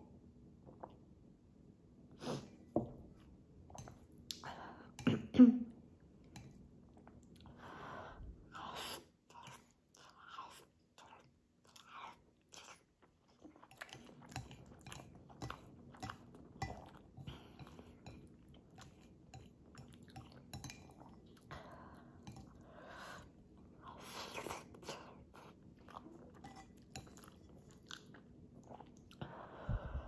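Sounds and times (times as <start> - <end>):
person chewing noodles: 8.5 - 29.3.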